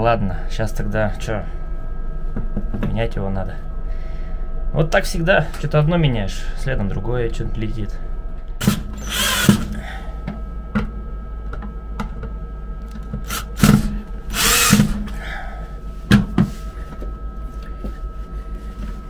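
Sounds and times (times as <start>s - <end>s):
low machine hum: 0.0s - 19.0s
faint steady high tone: 15.1s - 19.0s.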